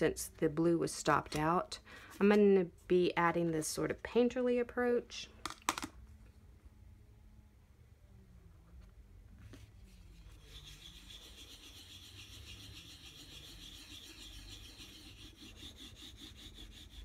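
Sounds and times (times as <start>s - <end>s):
scratchy rubbing on paper: 9.5s - 17.0s.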